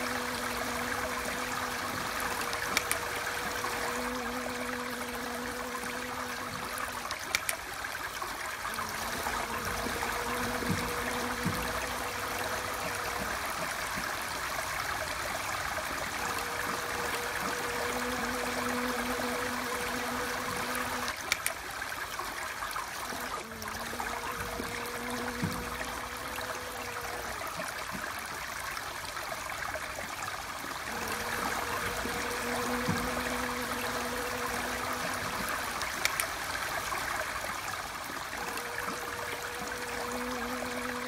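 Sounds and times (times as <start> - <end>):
bee wings buzzing: 0.0 - 7.6, 8.5 - 21.5, 23.0 - 27.9, 30.8 - 37.2, 38.3 - 41.0
faint clicks: 0.0 - 7.7, 16.1 - 21.6, 30.9 - 36.6
rushing running water: 0.0 - 41.0.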